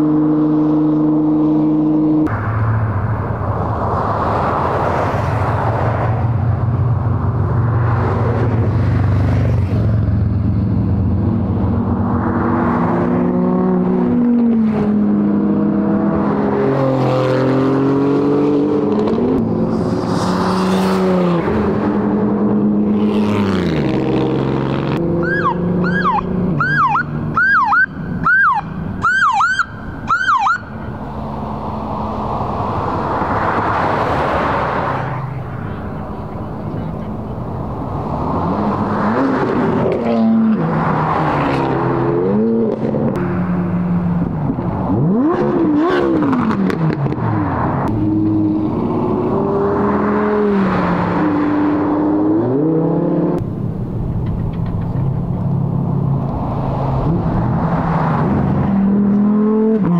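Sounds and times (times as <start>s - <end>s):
rally cars revving past: 11.9s - 26.6s, 38.0s - 53.4s, 56.5s - 59.9s
siren sweeping: 25.1s - 30.9s.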